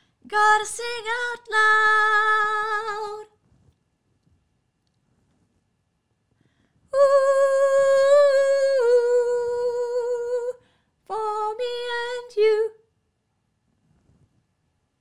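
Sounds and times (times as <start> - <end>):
woman singing unaccompanied: 0.2 - 3.4, 6.9 - 12.8.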